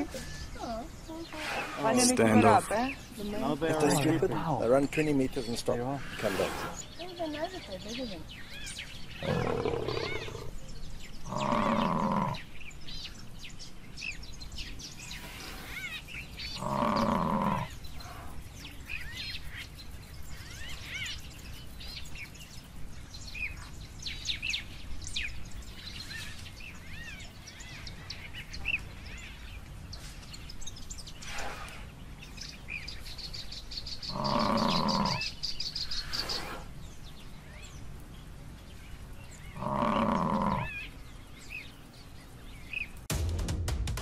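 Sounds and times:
birds chirping: 0.0s - 43.1s
buffalo bawling: 34.1s - 35.2s.

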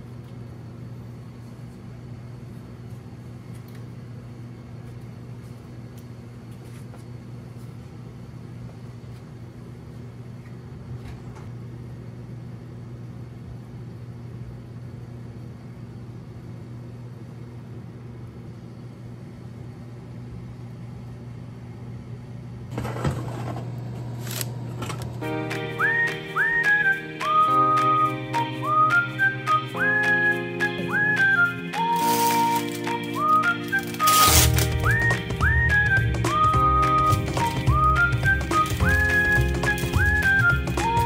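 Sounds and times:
kitchen appliance humming: 30.0s - 41.0s.

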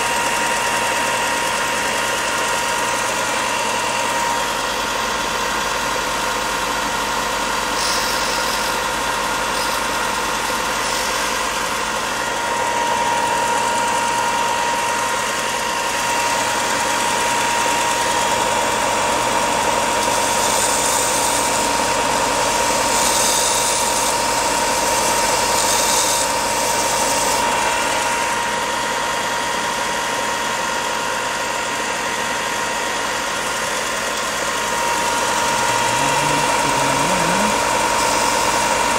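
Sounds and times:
belt sander whining: 0.0s - 38.9s
wood sanding hiss: 7.6s - 12.1s, 20.0s - 27.4s, 35.0s - 38.9s.

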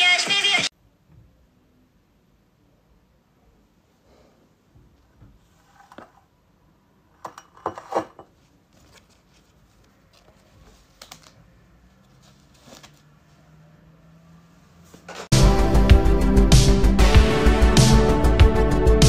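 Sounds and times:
paper mask rustling: 8.4s - 13.7s.

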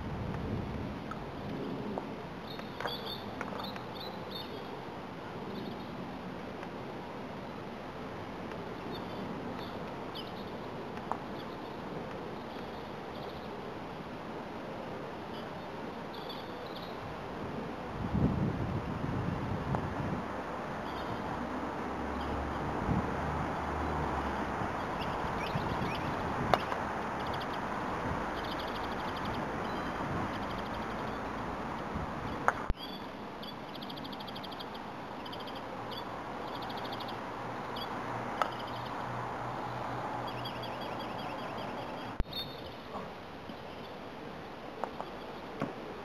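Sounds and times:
outdoor background noise: 0.0s - 46.0s
small birds chirping: 2.4s - 4.8s, 5.4s - 6.0s, 8.8s - 13.6s, 15.2s - 17.0s, 20.8s - 21.4s, 23.8s - 31.4s, 32.3s - 44.0s.

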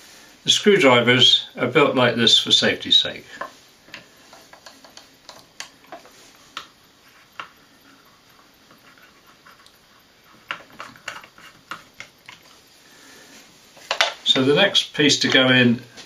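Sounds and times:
wooden clicks and knocks: 3.4s - 6.7s, 13.8s - 14.4s.

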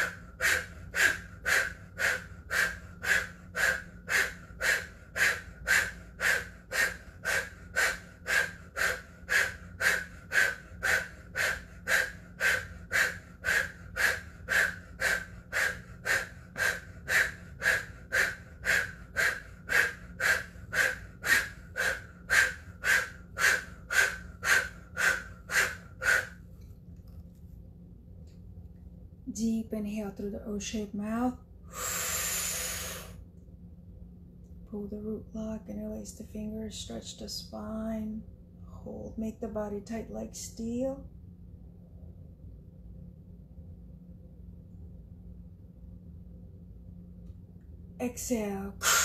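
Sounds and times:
woman breathing forcefully: 0.0s - 26.5s, 31.6s - 33.2s, 48.8s - 49.0s.

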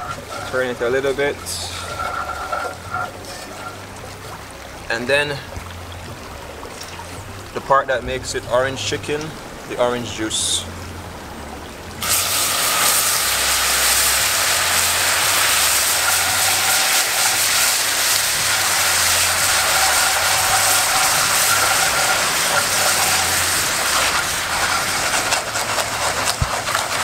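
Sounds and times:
wooden spoon stirring: 0.0s - 4.3s, 13.3s - 27.0s
sauce sizzling and bubbling: 12.0s - 27.0s.

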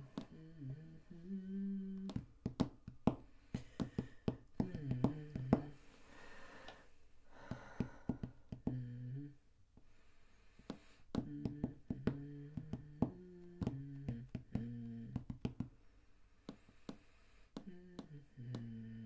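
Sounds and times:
person humming: 0.0s - 5.9s, 7.3s - 9.4s, 10.7s - 15.6s, 17.6s - 19.0s.

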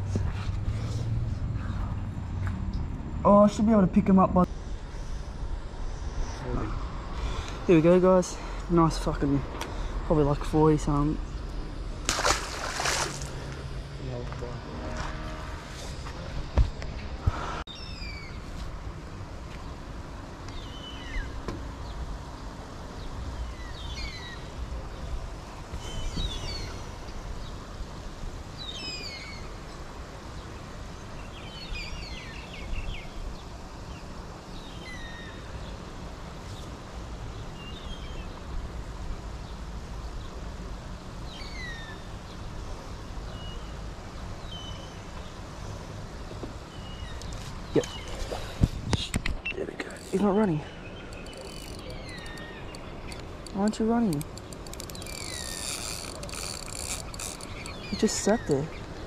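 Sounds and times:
steady low rumble: 0.0s - 7.8s
small birds chirping: 20.4s - 28.0s, 41.2s - 59.0s.

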